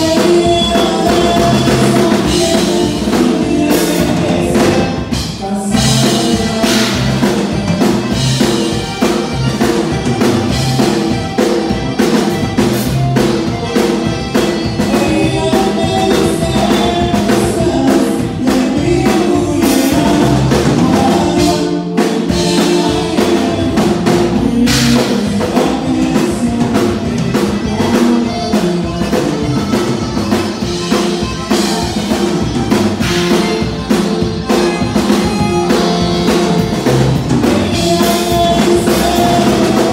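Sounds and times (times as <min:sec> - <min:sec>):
accordion-led dance band music: 0:00.0 - 0:39.9.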